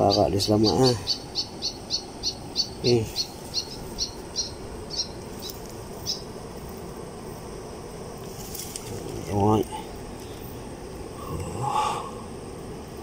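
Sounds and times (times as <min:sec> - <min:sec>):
animal chirping: 0:00.0 - 0:06.3
low background noise: 0:00.0 - 0:13.0.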